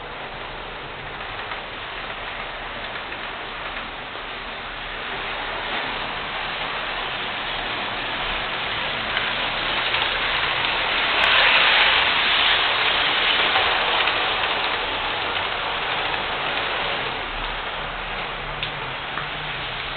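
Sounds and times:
model train whirring rattle: 7.6s - 19.9s.

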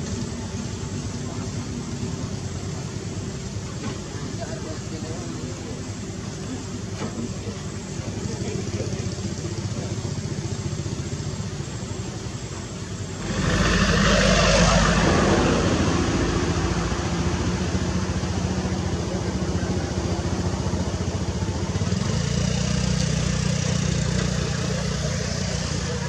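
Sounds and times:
excavator diesel engine revving: 13.0s - 26.0s.

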